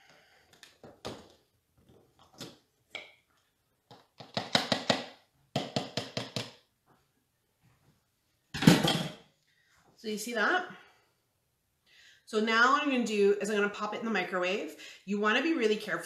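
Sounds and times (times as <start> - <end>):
sharp plastic knocks: 3.9 - 6.6.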